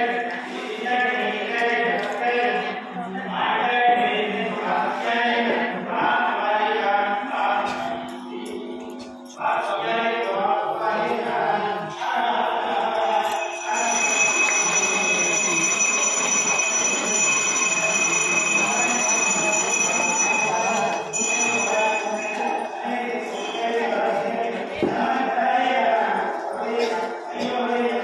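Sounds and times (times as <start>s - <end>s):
voices chanting: 9.4s - 28.0s
temple bell ringing: 12.9s - 23.6s.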